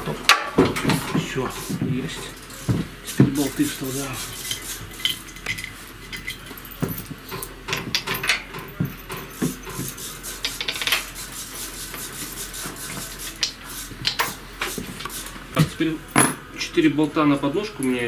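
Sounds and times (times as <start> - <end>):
metallic clinks and scrapes: 3.3 - 11.2.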